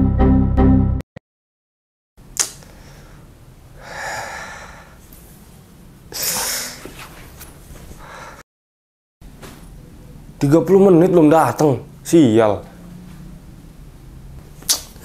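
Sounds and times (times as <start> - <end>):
sharp click: 2.4 - 2.6.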